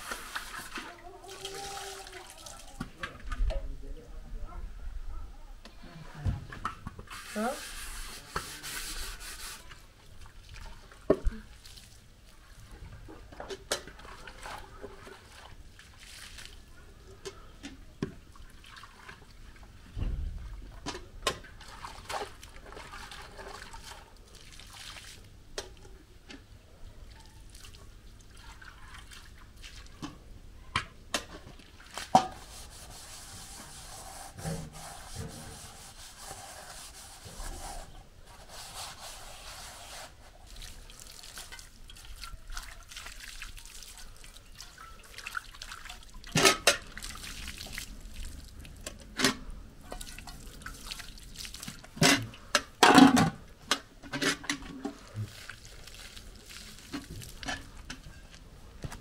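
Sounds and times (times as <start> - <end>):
scrubbing pots: 0.0 - 2.9, 6.5 - 11.9, 12.6 - 16.5, 20.7 - 25.7, 31.1 - 58.4
water splashing over pans: 0.0 - 3.2, 6.4 - 58.4.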